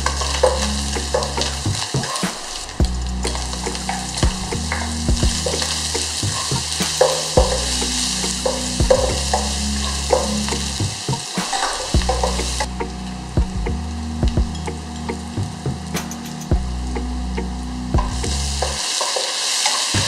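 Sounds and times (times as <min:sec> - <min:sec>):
low steady hum: 0:00.0 - 0:02.1, 0:02.7 - 0:11.2, 0:11.9 - 0:18.8
food sizzling in hot oil: 0:00.0 - 0:12.7, 0:18.2 - 0:20.0.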